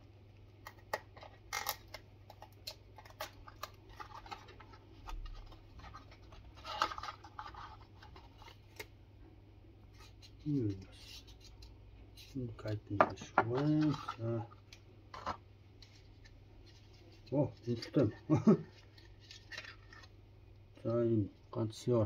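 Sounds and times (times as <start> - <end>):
cardboard rustling and scratching: 3.0 - 8.8.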